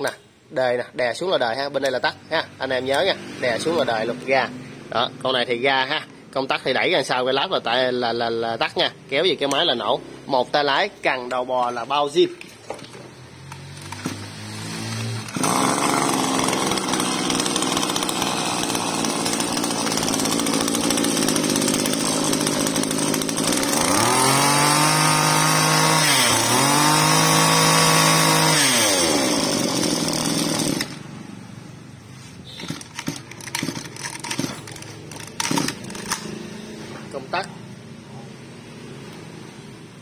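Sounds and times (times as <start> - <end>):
brush cutter engine revving: 1.8 - 4.4, 13.4 - 31.2, 32.4 - 37.4.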